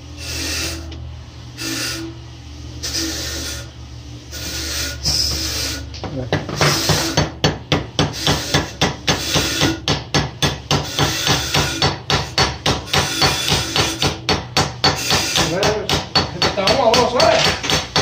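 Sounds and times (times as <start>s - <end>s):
hammer striking metal punch: 6.3s - 18.0s.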